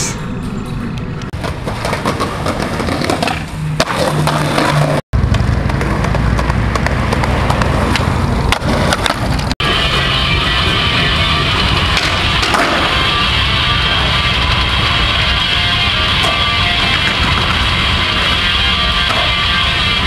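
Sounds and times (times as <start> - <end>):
skateboard wheels rolling on concrete: 1.0 - 20.0
skateboard clacks: 1.4 - 9.5, 11.9 - 13.0, 16.1 - 19.9.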